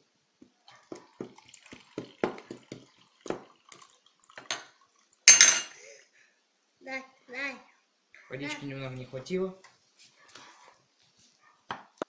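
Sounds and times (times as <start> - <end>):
water glugging as it pours: 0.8 - 5.1.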